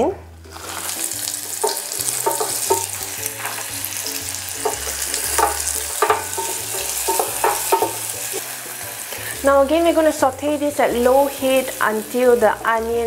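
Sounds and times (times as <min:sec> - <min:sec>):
onion sizzling in pan: 0:00.4 - 0:13.0
wooden spatula scraping: 0:00.5 - 0:04.0.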